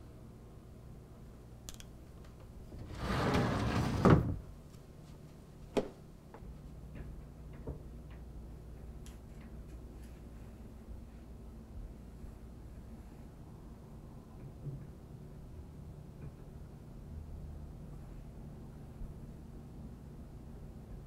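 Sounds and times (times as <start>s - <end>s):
sliding closet door rolling: 2.7s - 4.5s.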